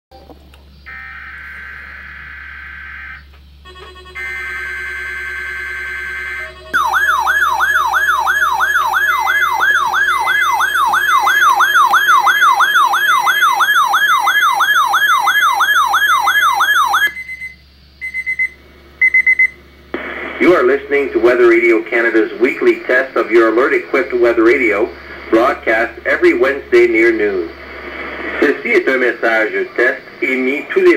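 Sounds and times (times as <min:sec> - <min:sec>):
warbling radio alarm: 0:00.8 - 0:30.9
short beeps: 0:17.1 - 0:19.6.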